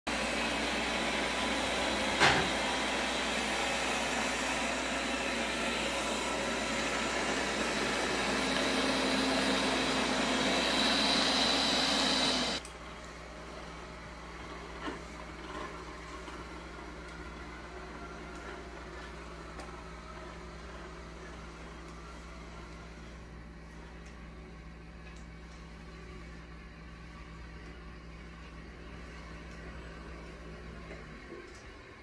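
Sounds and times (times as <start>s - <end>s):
robot vacuum running: 0.1s - 12.6s.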